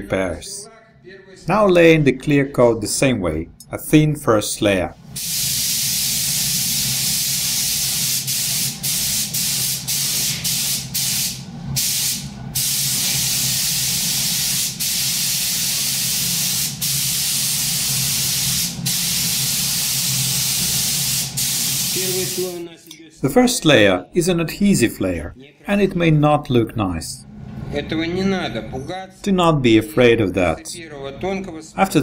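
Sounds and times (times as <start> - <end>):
steady low hum: 0.0 - 32.0
spray gun hissing: 5.2 - 22.7.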